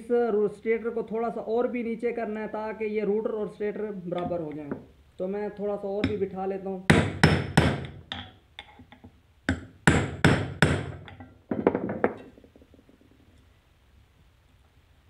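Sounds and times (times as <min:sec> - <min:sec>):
hammer striking steel axle: 0:06.9 - 0:08.8, 0:09.5 - 0:11.3.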